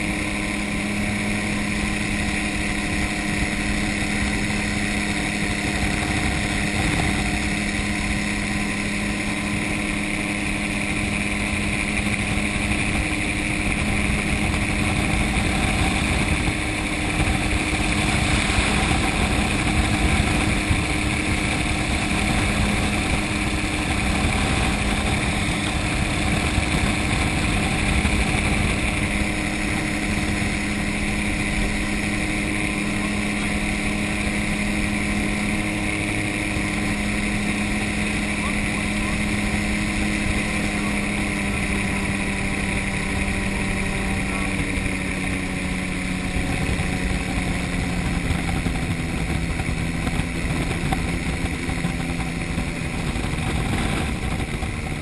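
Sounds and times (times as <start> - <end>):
gyrocopter engine and propeller droning: 0.0 - 55.0.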